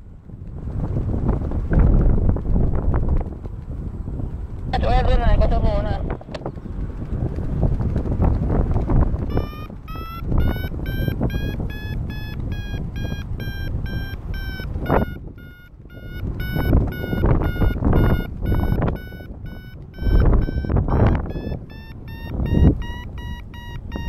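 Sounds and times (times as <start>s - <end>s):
wind rushing over microphone: 0.0s - 24.0s
variometer beeping: 9.1s - 24.0s.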